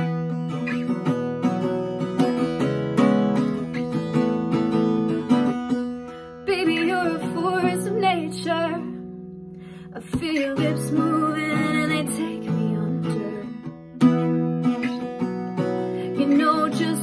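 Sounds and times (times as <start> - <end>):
acoustic guitar strumming: 0.0 - 17.0
woman singing: 6.4 - 9.1, 9.8 - 13.8, 16.0 - 17.0.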